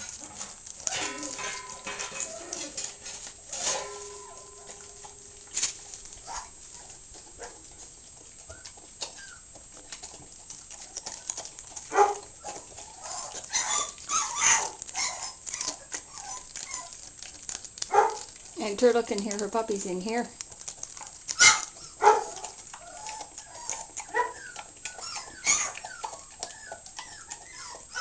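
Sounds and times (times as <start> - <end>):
faint thin whine: 0.0 - 9.5
dog chewing and licking: 0.0 - 28.0.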